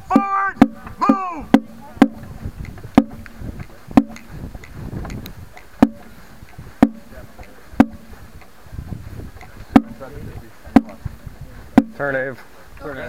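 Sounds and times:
snare drum knocks: 0.1s - 4.3s, 5.8s - 6.1s, 6.8s - 7.1s, 9.8s - 10.0s, 10.8s - 11.0s, 11.8s - 12.0s
low rumble of movement: 0.8s - 11.8s.

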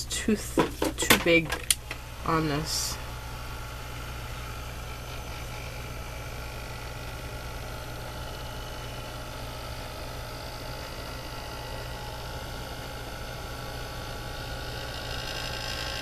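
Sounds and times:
heat tool motor hum and fan hiss: 0.0s - 16.0s.

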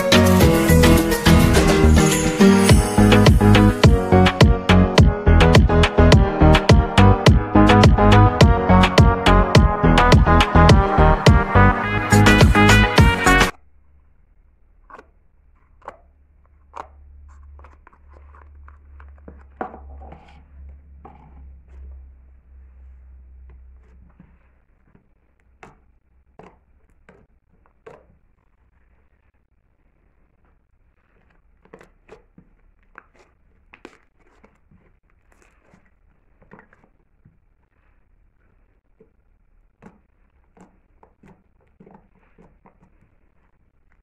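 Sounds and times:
squishy slime crackles: 23.8s - 44.0s.

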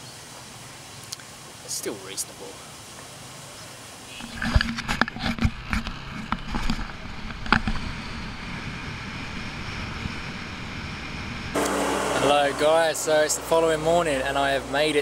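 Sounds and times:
wind and road noise: 0.0s - 15.0s
scooter engine running: 5.4s - 15.0s.

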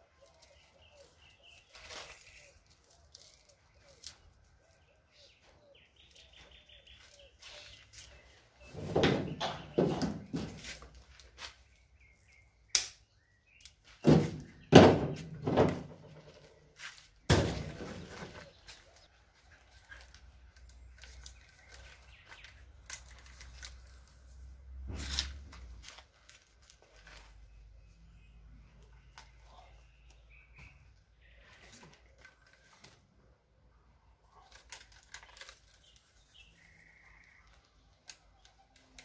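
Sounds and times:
trimmer spool knocks and thumps: 14.0s - 16.2s.

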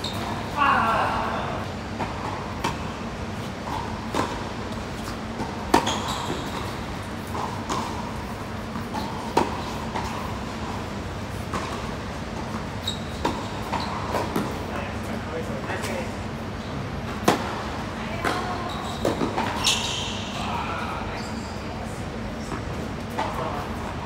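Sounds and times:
tennis balls struck with rackets: 3.7s - 14.6s, 17.1s - 19.6s.

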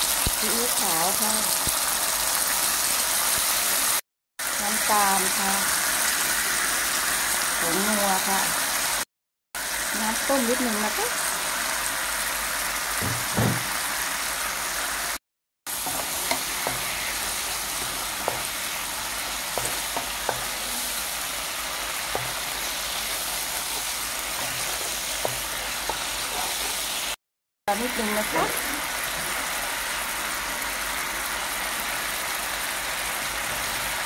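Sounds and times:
sauce sizzling in a frying pan: 0.0s - 34.0s
wooden spatula tapping: 15.9s - 17.1s, 19.5s - 20.6s.

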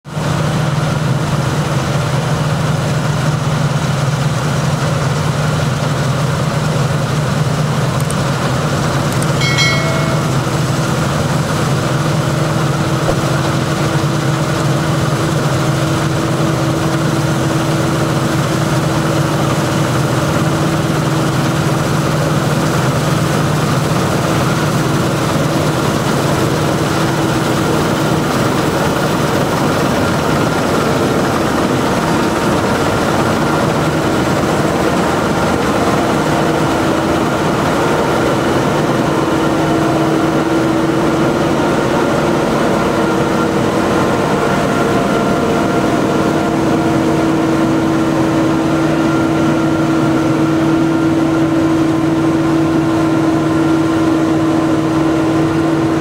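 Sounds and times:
combine harvester drone: 0.1s - 56.0s
brief high chirp: 9.2s - 10.7s.

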